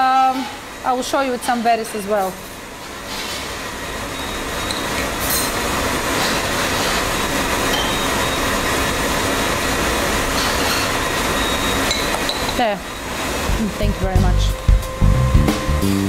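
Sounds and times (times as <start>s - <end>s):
spoon clinking against glass: 7.7s - 8.5s, 11.9s - 12.6s.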